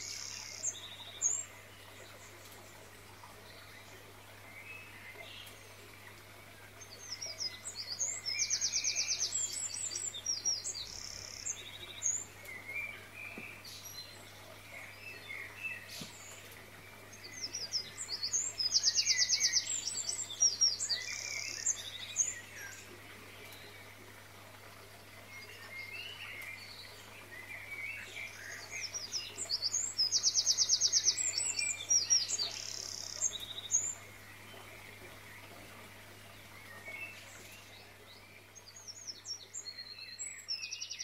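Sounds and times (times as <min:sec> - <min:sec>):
bird song with trill: 0:00.0 - 0:02.2, 0:06.8 - 0:23.8, 0:25.3 - 0:35.6, 0:36.3 - 0:41.0
soft bird chirps: 0:00.0 - 0:24.0.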